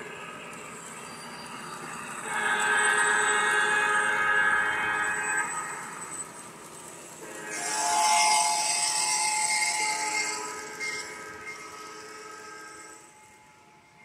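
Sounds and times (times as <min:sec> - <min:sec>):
multi-note train horn: 0:02.2 - 0:05.8, 0:07.2 - 0:14.0.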